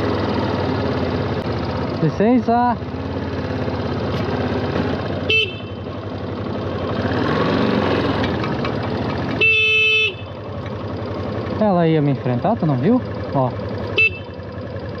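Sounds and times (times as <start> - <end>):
motorcycle engine running: 0.0 - 15.0
motorcycle horn honking: 5.1 - 6.1, 9.3 - 10.5, 13.8 - 14.6.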